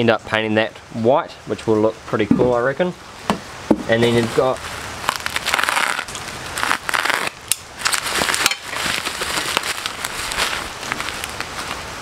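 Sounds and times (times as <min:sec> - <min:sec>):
bubble wrap crinkling: 0:04.1 - 0:12.0.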